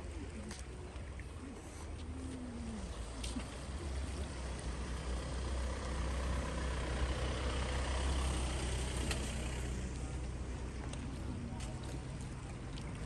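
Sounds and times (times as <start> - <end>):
vehicle passing by: 2.2 - 12.5.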